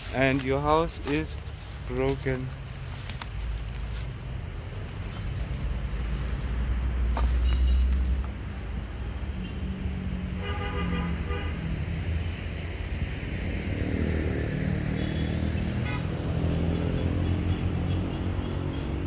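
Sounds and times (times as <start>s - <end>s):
low traffic rumble: 0.0s - 19.0s
vehicle horn tooting: 7.4s - 7.9s, 10.4s - 11.6s, 15.0s - 16.1s.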